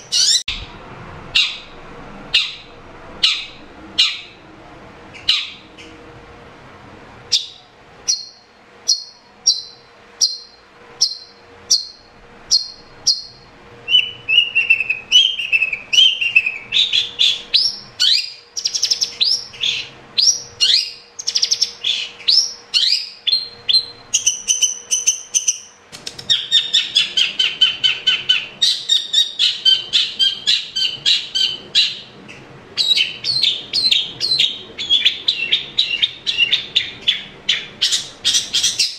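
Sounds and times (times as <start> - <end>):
bird chattering song: 0.0 - 0.7, 1.3 - 1.7, 2.3 - 4.4, 5.1 - 6.0, 7.3 - 38.9
bird repeated sharp calls: 0.0 - 0.7, 1.4 - 1.7, 2.3 - 4.4, 5.2 - 6.0.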